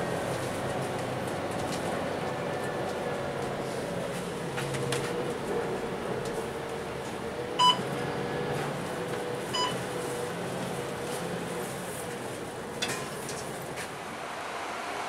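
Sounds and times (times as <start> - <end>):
bus interior hum: 0.0 - 15.0
short electronic beeps: 9.6 - 9.8.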